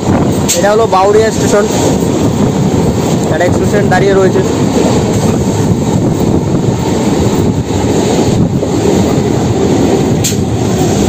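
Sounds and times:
rushing air: 0.0s - 11.0s
train wheels rumbling on rail: 0.0s - 11.0s.

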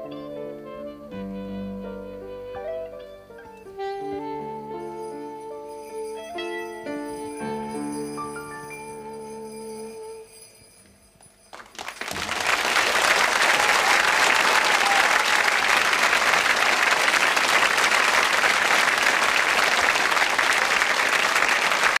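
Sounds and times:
audience applauding: 11.5s - 22.0s.

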